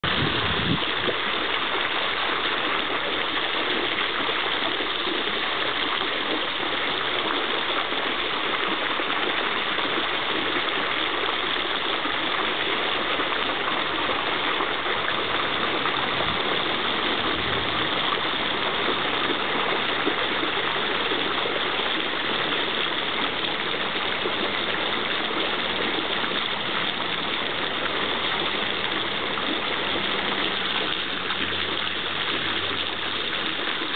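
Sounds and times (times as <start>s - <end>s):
water splashing in fountain: 0.0s - 33.9s.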